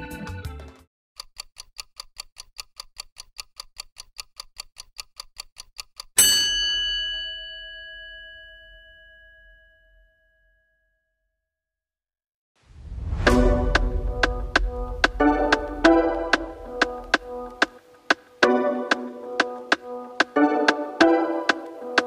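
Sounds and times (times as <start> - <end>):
timer ticking: 1.2 - 6.2, 13.2 - 22.0
bell ding: 6.2 - 11.1.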